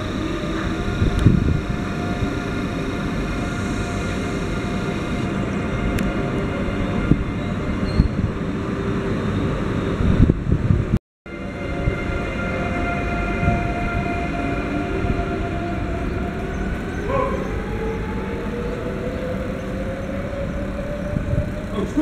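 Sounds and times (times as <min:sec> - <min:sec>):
electric train hum: 0:00.0 - 0:22.0
train motor whine rising: 0:00.0 - 0:22.0
whining tones: 0:00.0 - 0:22.0.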